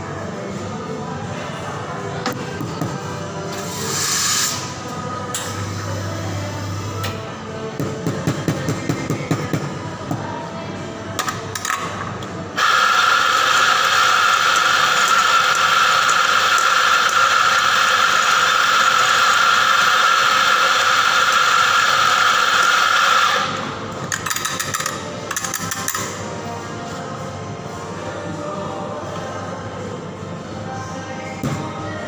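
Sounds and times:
coffee grinder grinding: 12.6s - 23.6s.

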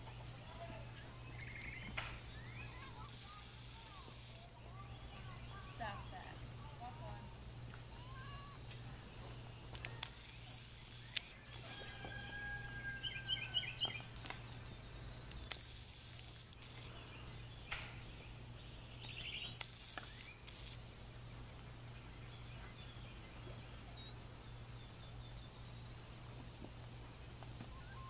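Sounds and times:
small birds chirping: 0.0s - 26.5s, 27.5s - 28.0s
steady low hum: 0.0s - 28.0s
sharp clicks: 9.7s - 11.8s, 15.3s - 16.9s, 19.1s - 20.8s.

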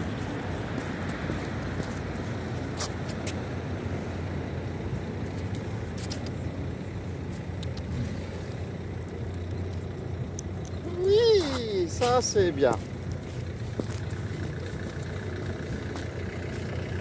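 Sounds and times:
road traffic rumble: 0.0s - 17.0s
light clicks: 7.4s - 7.9s.

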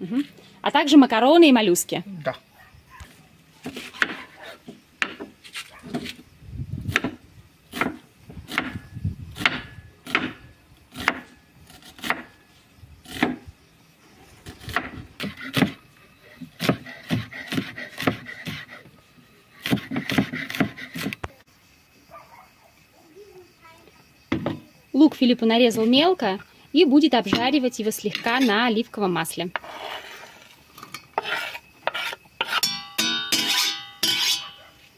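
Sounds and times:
knife chopping on wooden board: 3.6s - 4.3s, 7.8s - 8.8s, 9.4s - 10.4s, 11.0s - 11.3s, 11.9s - 12.3s, 16.6s - 18.7s, 19.6s - 21.1s.

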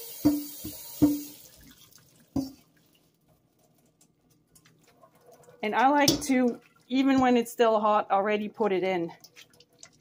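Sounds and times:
tap water running: 0.0s - 7.9s, 8.5s - 10.0s
metal colander knocking on sink: 0.2s - 1.3s, 6.0s - 7.4s
faint dripping: 1.4s - 7.5s, 9.0s - 10.0s.

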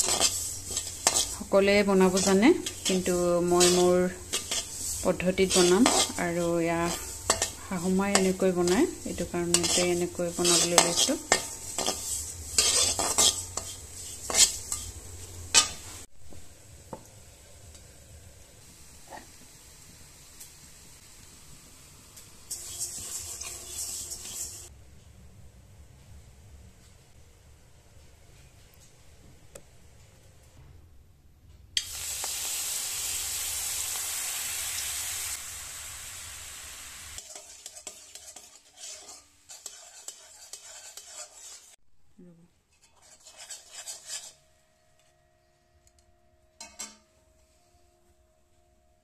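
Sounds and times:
sesame seeds rustling in a wok: 0.0s - 16.1s, 18.6s - 24.7s, 31.8s - 41.8s, 42.7s - 44.4s
spatula scraping a metal pan: 0.0s - 16.1s, 22.5s - 24.7s, 37.2s - 41.8s, 42.7s - 44.6s.

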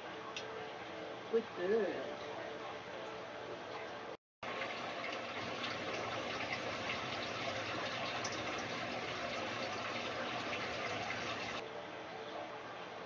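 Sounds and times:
filter water splashing and bubbling: 4.4s - 11.6s.

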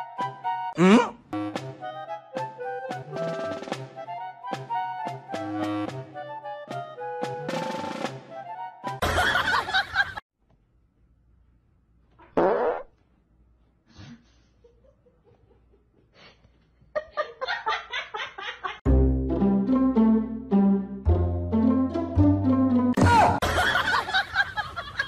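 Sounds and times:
fart: 12.2s - 13.0s.

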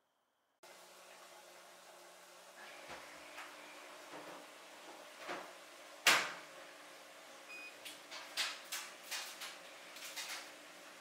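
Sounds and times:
washing machine door thud: 5.2s - 6.4s.

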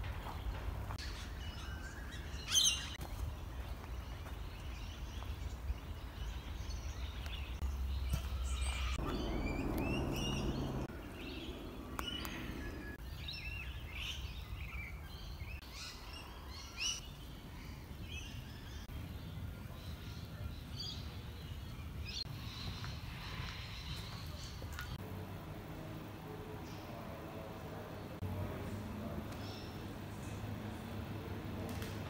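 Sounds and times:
birds chirping and whistling: 4.7s - 17.0s
low background rumble: 7.5s - 13.5s
low hum: 7.6s - 13.0s.

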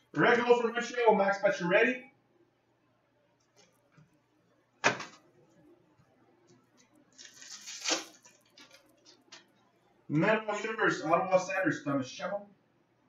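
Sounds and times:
foil wrapper tearing: 7.1s - 9.4s.

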